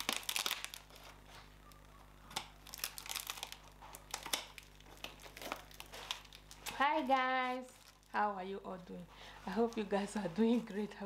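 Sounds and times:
scissors snipping plastic film: 0.0s - 1.0s, 2.3s - 6.8s
plastic crinkling: 0.0s - 8.4s.

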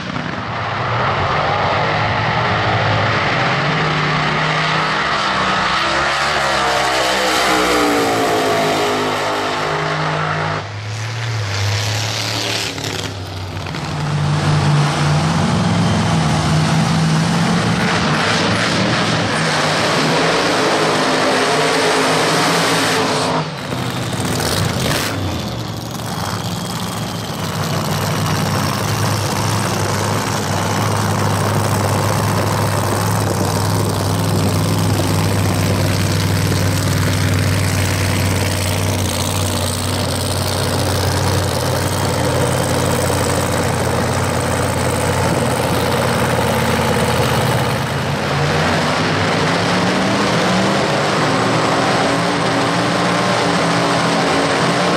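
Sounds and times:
car engine idling: 23.6s - 48.3s.

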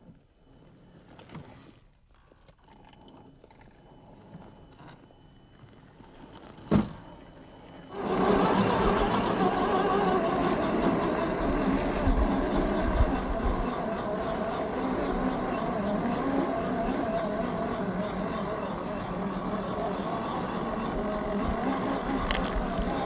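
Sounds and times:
rc truck motor whine: 7.3s - 23.0s.

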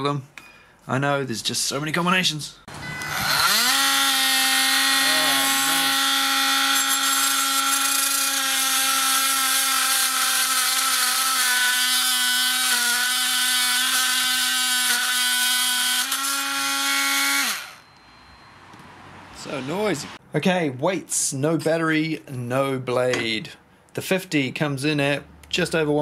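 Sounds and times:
oscillating multitool humming: 2.7s - 7.5s
blade cutting through nail: 3.2s - 17.8s.

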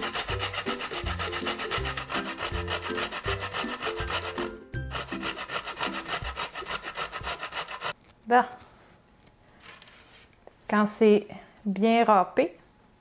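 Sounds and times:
root rasping on a metal grater: 0.0s - 8.0s.

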